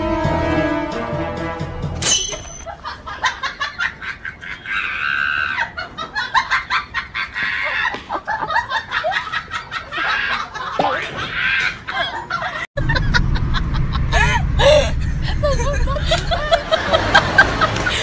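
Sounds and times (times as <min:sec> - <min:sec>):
background music: 0:00.0 - 0:02.6.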